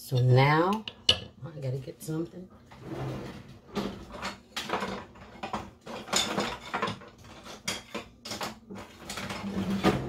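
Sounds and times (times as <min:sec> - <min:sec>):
kitchen utensils clattering: 0:02.7 - 0:10.0.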